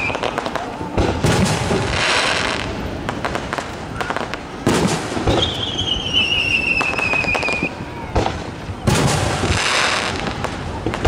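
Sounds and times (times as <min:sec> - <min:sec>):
fireworks bursting and crackling: 0:00.0 - 0:11.0
long falling whistle: 0:05.3 - 0:08.1.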